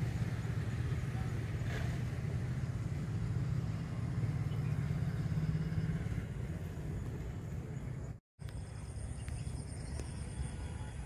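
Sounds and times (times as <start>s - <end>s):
vehicle engine running: 0.0s - 8.8s.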